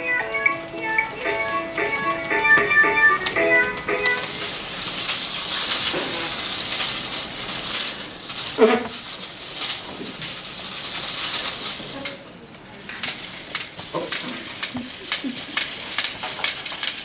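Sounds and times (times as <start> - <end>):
music: 0.0 - 4.6
metal toy rattling on tile floor: 0.0 - 17.0.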